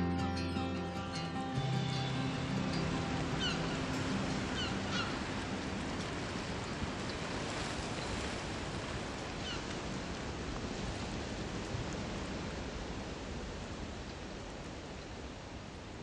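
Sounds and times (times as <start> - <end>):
background music: 0.0 - 6.6
steady background hiss: 0.0 - 16.0.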